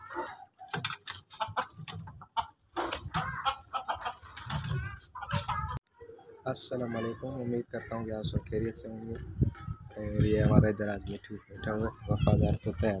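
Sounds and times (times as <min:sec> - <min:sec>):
chickens clucking: 0:00.0 - 0:06.6.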